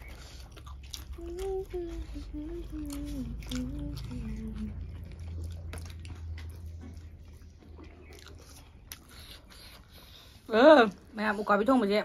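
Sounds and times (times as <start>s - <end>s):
chewing and lip-smacking: 0.0s - 11.9s
low steady hum: 0.0s - 12.0s
person humming: 1.2s - 4.8s.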